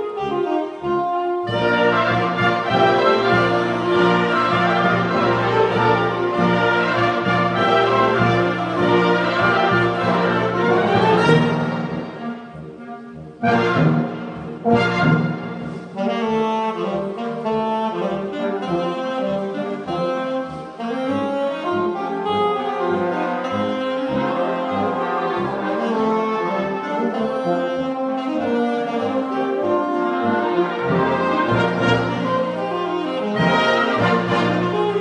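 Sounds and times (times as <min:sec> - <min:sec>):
solo saxophone melody: 0:00.0 - 0:35.0
wind band playing: 0:00.0 - 0:35.0.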